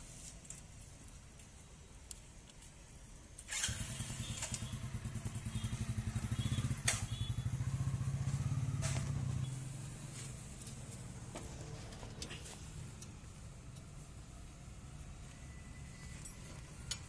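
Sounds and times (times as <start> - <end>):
sharp metallic clicks: 6.5 - 7.3.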